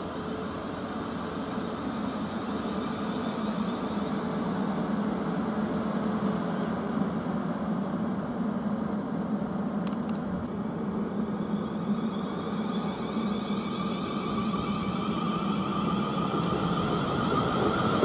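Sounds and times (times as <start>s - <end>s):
electric train running: 10.8s - 18.0s.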